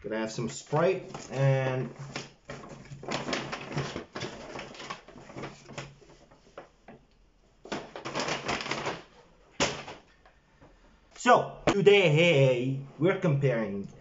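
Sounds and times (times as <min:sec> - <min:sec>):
paper bags rustling: 0:00.2 - 0:06.8, 0:07.6 - 0:10.1.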